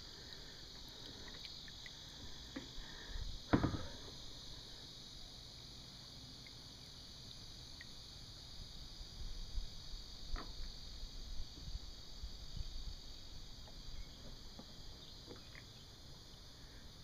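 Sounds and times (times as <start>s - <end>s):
steady high hiss: 0.0s - 17.0s
water dripping: 0.2s - 2.7s.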